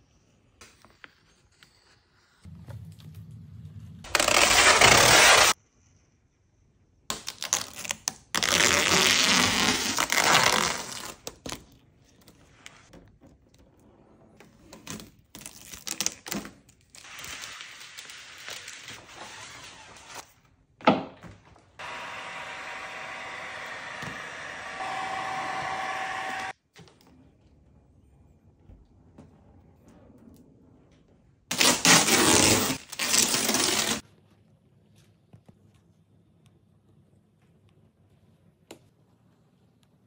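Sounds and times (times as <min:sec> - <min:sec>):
heat gun blowing: 0:21.8 - 0:26.5.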